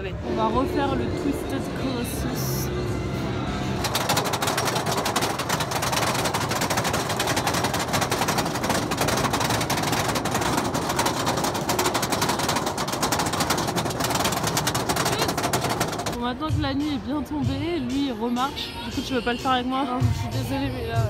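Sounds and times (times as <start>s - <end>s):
roller coaster lift chain clacking: 3.8s - 16.2s.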